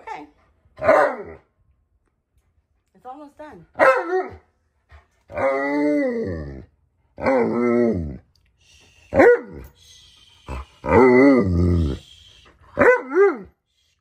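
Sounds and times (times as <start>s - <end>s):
dog howling: 5.3s - 6.6s, 10.4s - 13.5s.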